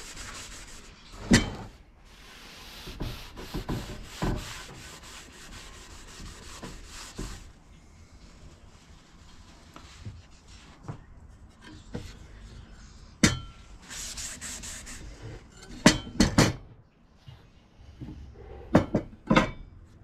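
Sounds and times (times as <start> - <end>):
cloth rag rubbing wood: 0.0 - 1.0, 2.0 - 11.5, 13.8 - 15.3.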